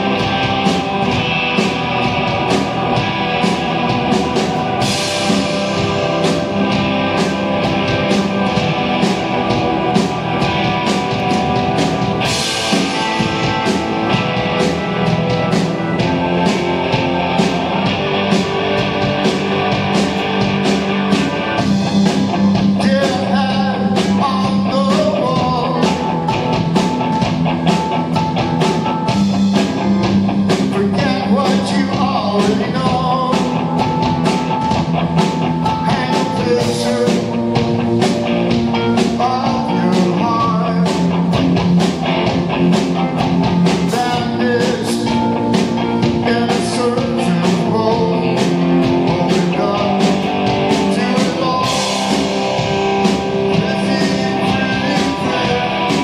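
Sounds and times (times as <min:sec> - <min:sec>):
drum kit beat: 0:00.0 - 0:56.0
electric guitar: 0:00.0 - 0:56.0
keyboards: 0:00.0 - 0:56.0
man singing: 0:22.6 - 0:26.2, 0:30.5 - 0:33.7, 0:35.7 - 0:37.6, 0:38.8 - 0:41.3, 0:43.7 - 0:45.4, 0:46.0 - 0:56.0.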